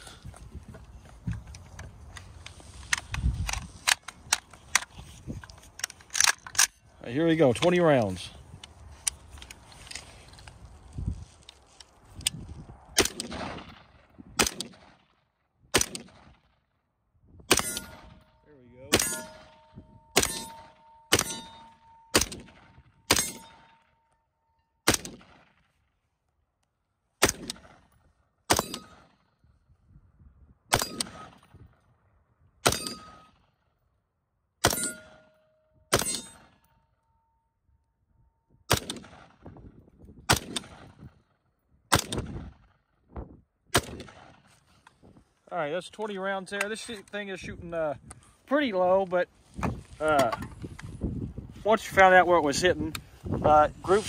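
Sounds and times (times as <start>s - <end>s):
rifle single shots: 12.9s - 15.1s, 15.7s - 16.5s, 17.5s - 18.3s, 18.9s - 23.9s, 24.8s - 25.6s, 27.2s - 27.9s, 28.5s - 29.2s, 30.7s - 31.5s, 32.6s - 33.4s, 35.9s - 36.6s, 38.7s - 39.4s, 40.3s - 41.1s, 41.9s - 42.7s, 43.7s - 44.5s
metallic ring: 19.0s - 22.2s, 34.7s - 36.4s.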